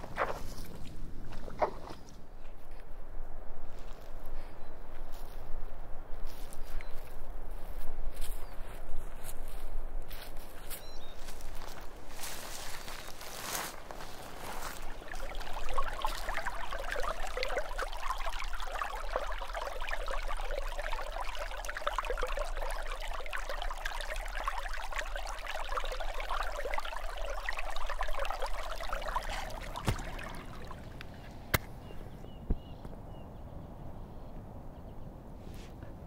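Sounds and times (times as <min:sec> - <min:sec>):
stream water rushing: 0:12.2 - 0:31.3.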